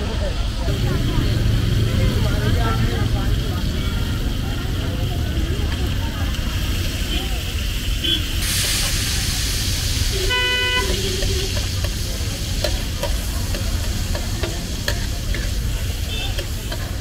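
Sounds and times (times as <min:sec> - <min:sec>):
traffic rumble: 0:00.0 - 0:17.0
tomatoes sizzling in oil: 0:01.4 - 0:17.0
vehicle horn honking: 0:10.2 - 0:11.5.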